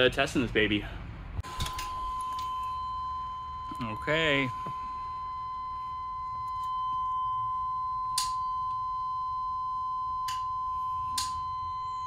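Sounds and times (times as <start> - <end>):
dashboard warning buzzer tone: 1.4 - 12.0.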